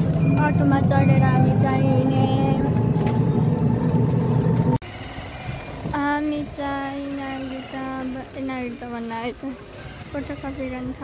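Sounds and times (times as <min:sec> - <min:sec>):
road rumble with whine: 0:00.0 - 0:11.0
people's voices: 0:00.2 - 0:02.8.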